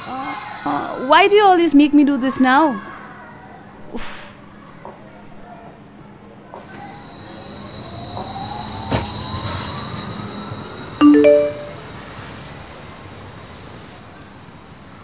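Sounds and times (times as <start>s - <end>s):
rising three-note chime: 11.0s - 11.8s
steady high tone: 11.0s - 11.8s.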